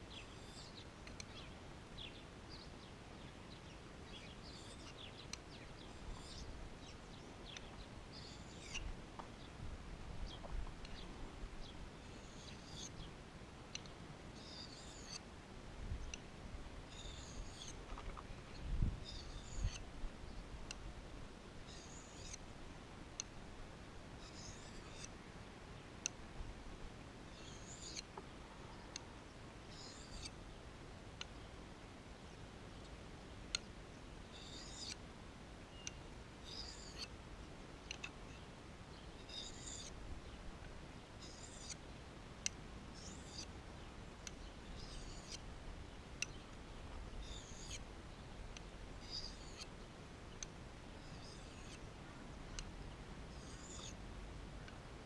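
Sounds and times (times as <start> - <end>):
knife scraping on sharpening bar: 6.1 - 6.5, 8.2 - 8.9, 12.2 - 12.9, 14.4 - 15.2, 16.9 - 17.8, 19.0 - 19.8, 21.7 - 22.4, 24.2 - 25.1, 27.4 - 28.1, 29.7 - 30.3, 34.4 - 35.0, 36.5 - 37.1, 39.3 - 39.9, 41.2 - 41.8, 43.0 - 43.5, 44.8 - 45.4, 47.2 - 47.8, 49.0 - 49.7, 51.0 - 51.8, 53.4 - 54.0
blade clicking on bar: 21.8 - 22.4.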